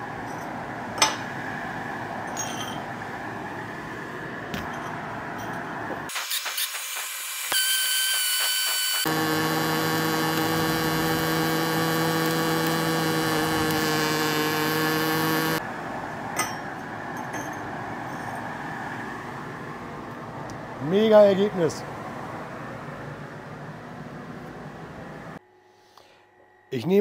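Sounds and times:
welding arc buzzing: 6.1s - 15.6s
welding arc crackling: 6.1s - 15.6s.

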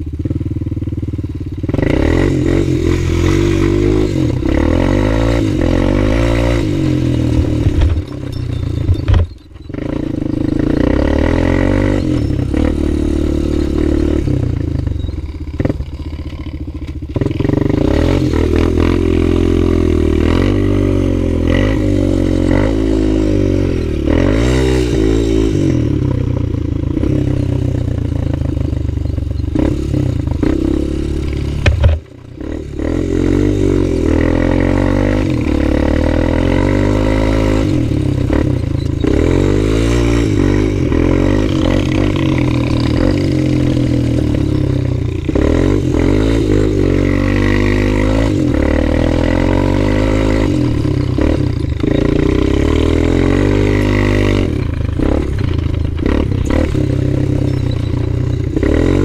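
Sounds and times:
quad bike engine revving: 0.0s - 59.0s.

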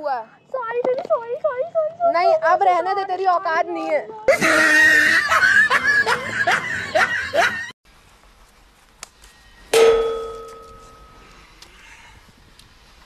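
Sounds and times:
woman giggling and squealing: 4.3s - 7.7s
sharp metallic ding: 9.7s - 11.3s.

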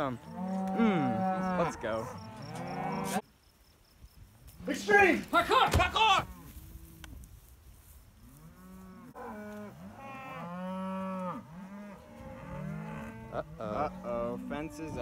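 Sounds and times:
cattle mooing: 0.2s - 3.2s, 8.4s - 15.0s.

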